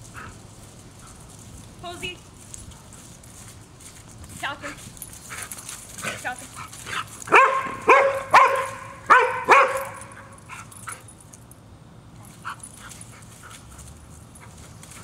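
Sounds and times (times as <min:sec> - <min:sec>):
dog barking: 0:07.3 - 0:10.1.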